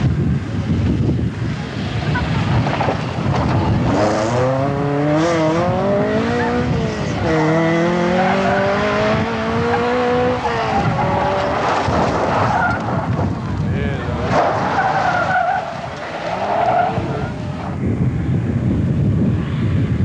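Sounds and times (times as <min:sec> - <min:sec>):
tyre noise on road: 0:00.0 - 0:20.0
rally car engine revving: 0:02.2 - 0:13.3.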